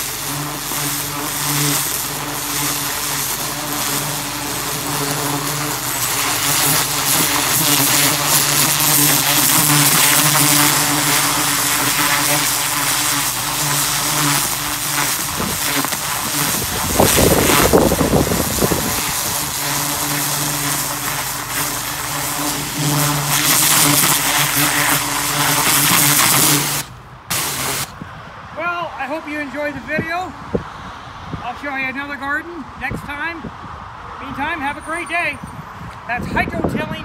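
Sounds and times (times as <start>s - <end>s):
pressure washer jet hissing: 0.0s - 28.0s
pressure washer machine hum: 0.0s - 28.0s.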